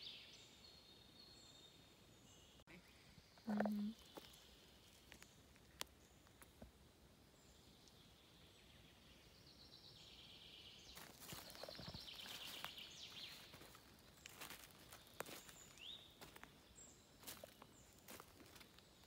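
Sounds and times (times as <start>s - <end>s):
faint birdsong: 0.0s - 19.0s
bird trilling song: 7.4s - 18.0s
footsteps in dry leaves: 11.0s - 16.5s, 17.2s - 18.9s.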